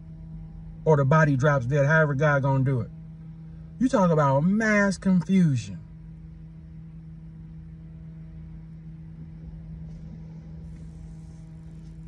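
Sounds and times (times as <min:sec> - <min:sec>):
car cabin hum: 0:00.0 - 0:12.0
faint steady tones: 0:00.0 - 0:12.0.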